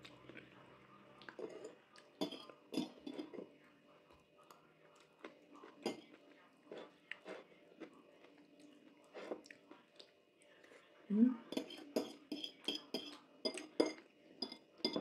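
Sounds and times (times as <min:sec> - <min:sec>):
chewing: 0:01.2 - 0:11.0.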